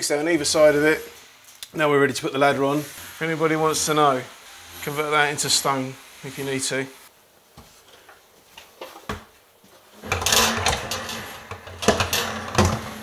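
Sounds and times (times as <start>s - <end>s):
metal brackets scraping and rattling: 10.0s - 13.0s.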